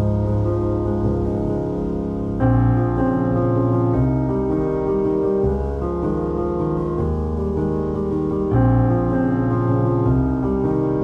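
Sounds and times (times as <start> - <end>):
piano chords: 0.0 - 11.0.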